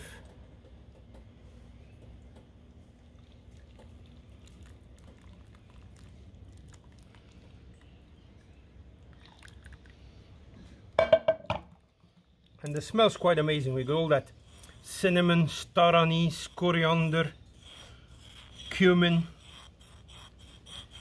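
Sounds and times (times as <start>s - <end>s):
sauce pouring through sieve: 2.8s - 8.2s.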